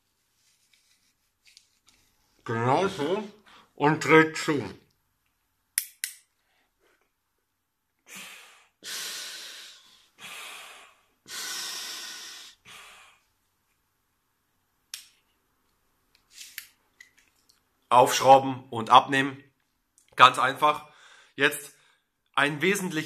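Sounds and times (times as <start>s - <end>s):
snorkel clamp clicks: 5.8s - 6.3s
airy breaths through snorkel: 8.1s - 13.3s.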